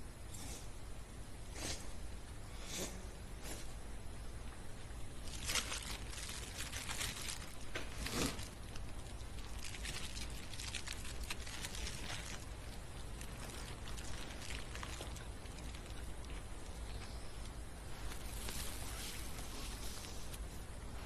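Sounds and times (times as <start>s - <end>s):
low steady hum: 0.0s - 21.0s
person chewing food: 5.6s - 17.6s.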